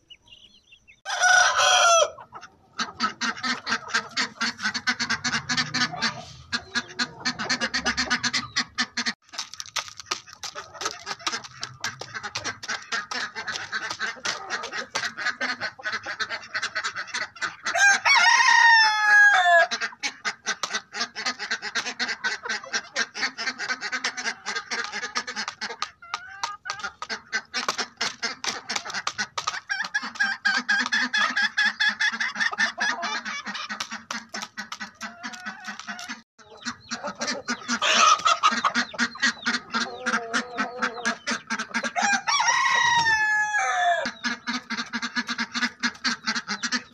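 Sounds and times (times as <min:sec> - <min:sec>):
chickens clucking: 0:00.0 - 0:46.9
rooster crowing: 0:01.0 - 0:02.2, 0:17.8 - 0:19.7, 0:42.0 - 0:44.1.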